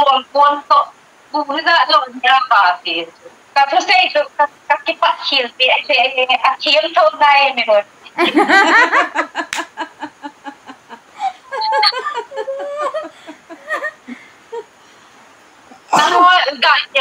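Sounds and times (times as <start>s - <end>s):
women laughing: 8.1s - 14.7s.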